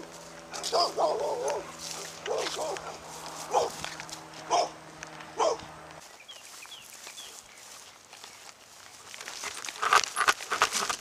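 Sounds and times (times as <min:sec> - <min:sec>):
dog barking: 0:00.5 - 0:03.9, 0:04.5 - 0:04.8, 0:05.4 - 0:05.7.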